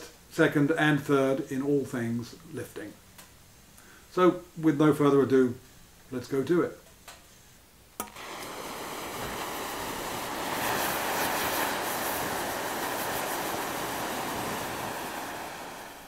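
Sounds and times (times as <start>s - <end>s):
paper burning with crackling: 8.1s - 16.0s.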